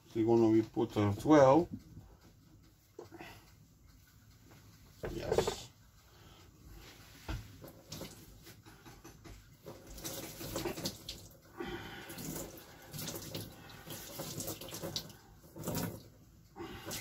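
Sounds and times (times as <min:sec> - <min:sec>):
tap water splashing: 0:07.3 - 0:11.4, 0:12.1 - 0:16.1.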